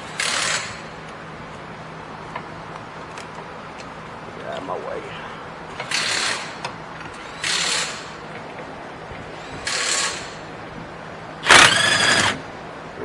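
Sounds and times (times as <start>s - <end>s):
impact wrench bursts: 0.0s - 0.9s, 5.7s - 6.6s, 7.2s - 8.2s, 9.4s - 10.5s, 11.4s - 12.4s.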